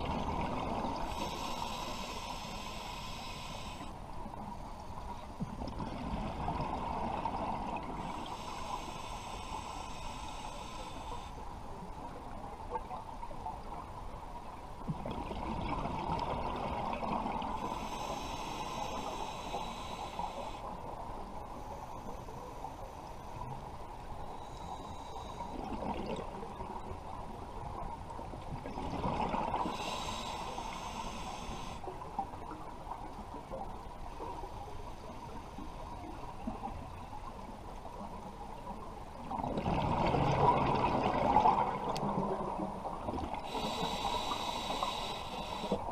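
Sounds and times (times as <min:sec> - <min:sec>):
steady hiss: 0:00.0 - 0:05.5, 0:07.2 - 0:12.5, 0:17.2 - 0:25.7, 0:29.5 - 0:38.6, 0:42.9 - 0:45.9
underwater exhaust bubbles gurgling: 0:00.0 - 0:45.9.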